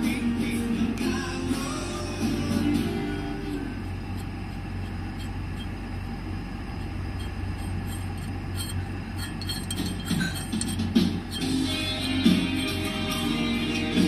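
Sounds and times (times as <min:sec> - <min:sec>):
workshop machinery hum: 0:00.0 - 0:14.0
light metallic clinks: 0:06.8 - 0:11.7.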